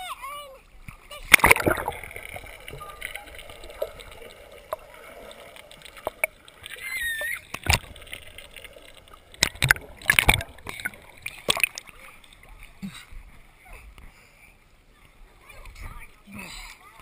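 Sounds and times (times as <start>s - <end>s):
bubbly splashes: 1.0s - 12.6s
muffled underwater bubbling: 1.2s - 12.8s.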